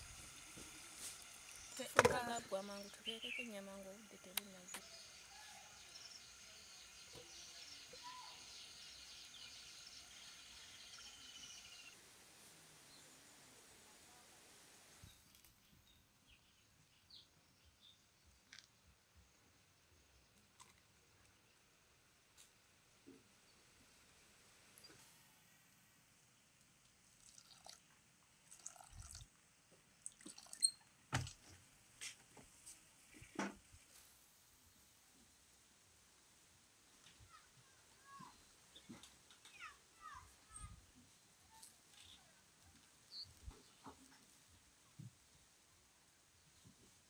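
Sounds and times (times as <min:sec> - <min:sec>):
insects: 0:00.2 - 0:12.1
birds chirping: 0:01.4 - 0:12.0.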